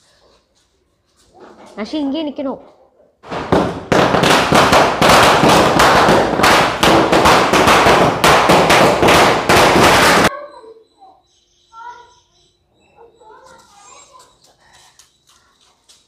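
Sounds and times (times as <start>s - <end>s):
firecrackers cracking and banging: 3.2s - 10.3s.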